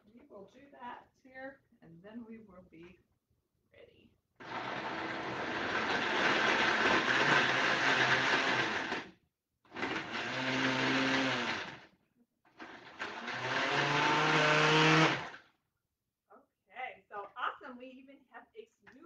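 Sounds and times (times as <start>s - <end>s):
blender crushing ice: 4.4s - 11.9s, 12.5s - 15.5s.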